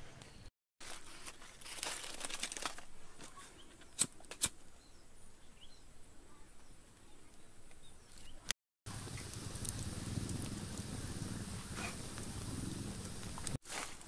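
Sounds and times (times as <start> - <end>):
rustling: 0.8 - 3.9, 9.1 - 14.0
faint bird chirps: 4.7 - 8.5.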